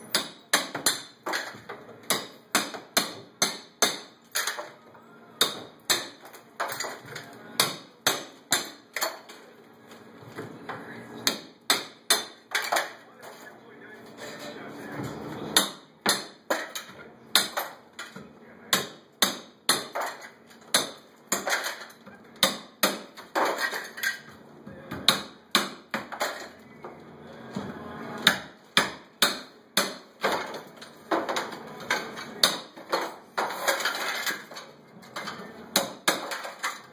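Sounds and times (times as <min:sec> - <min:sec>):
hammer cracking ceramic tile: 0:00.1 - 0:04.7, 0:05.4 - 0:07.0
tile shards clattering: 0:23.2 - 0:24.3, 0:30.2 - 0:35.4, 0:36.1 - 0:36.9.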